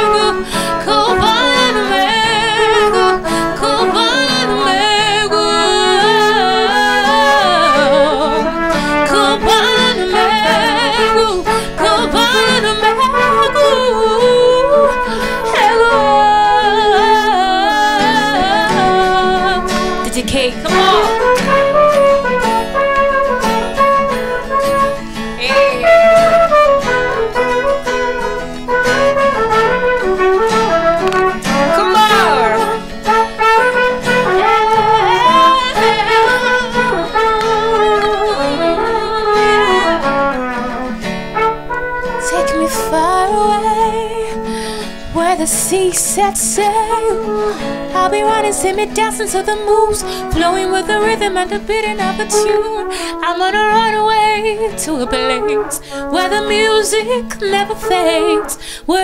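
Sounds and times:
trumpet solo: 0.0s - 20.0s, 20.7s - 44.6s, 54.9s - 58.6s
acoustic guitar: 0.0s - 59.0s
wordless singing: 3.6s - 21.1s.

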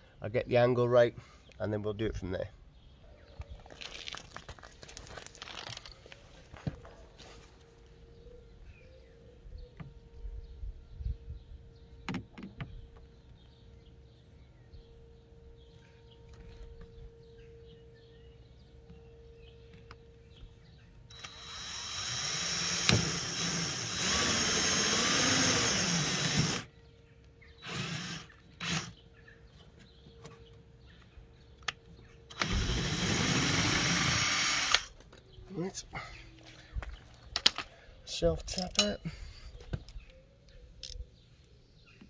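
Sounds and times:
electric drill boring: 21.1s - 26.7s, 27.6s - 28.9s, 32.3s - 34.9s.

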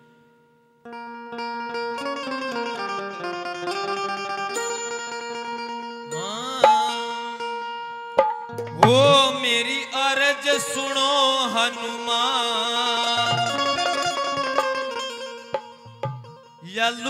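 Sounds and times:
steady held notes: 2.0s - 16.7s
dholak drum strokes: 4.5s - 17.0s
man singing: 6.1s - 7.7s, 8.6s - 14.9s, 16.6s - 17.0s.

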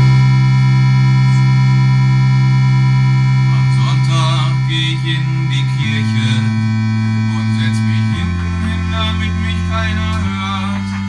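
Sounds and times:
sustained electronic chord: 0.0s - 11.0s
man speaking: 3.5s - 6.6s, 7.3s - 11.0s.

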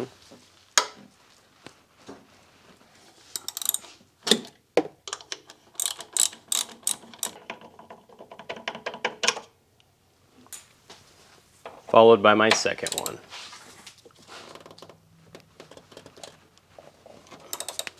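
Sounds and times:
ratchet wrench clicking: 3.4s - 3.8s, 5.8s - 7.4s, 12.8s - 13.2s, 17.4s - 17.9s.

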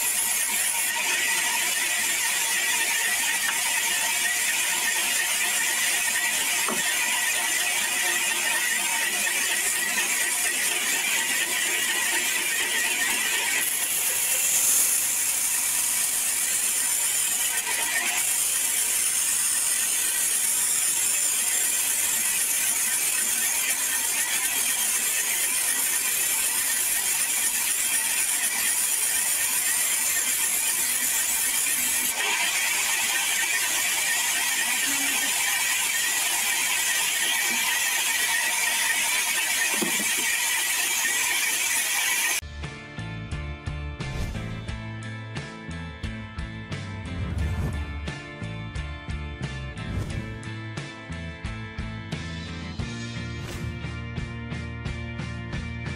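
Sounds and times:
band saw cutting log: 0.0s - 42.4s, 47.0s - 48.3s, 49.8s - 50.5s.

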